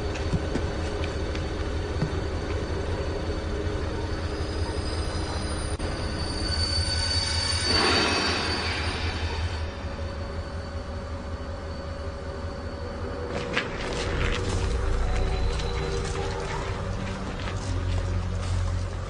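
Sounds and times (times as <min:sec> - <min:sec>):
train low rumble: 0:00.0 - 0:19.0
high-pitched wheel squeal: 0:04.1 - 0:10.1.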